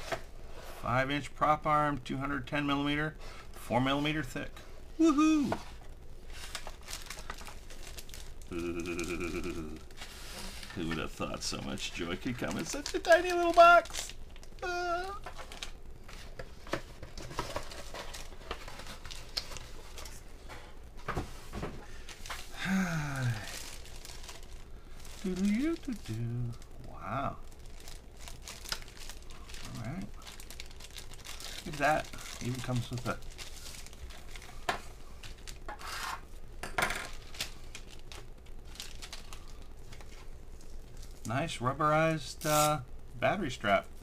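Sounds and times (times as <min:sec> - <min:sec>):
plastic bag rustling: 0:05.2 - 0:20.4, 0:21.0 - 0:36.4, 0:37.1 - 0:41.3.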